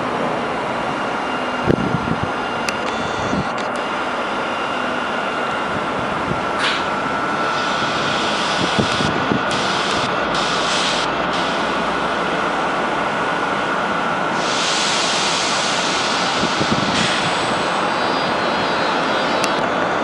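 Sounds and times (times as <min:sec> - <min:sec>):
locomotive cooling blowers hissing: 0:06.0 - 0:20.0.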